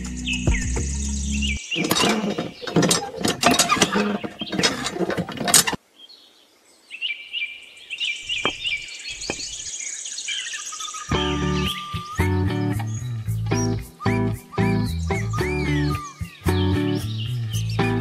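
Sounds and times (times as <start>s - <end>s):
birds chirping: 0.0s - 18.0s
small parts clicking and scraping: 1.8s - 5.8s
soft knocks: 8.3s - 9.6s.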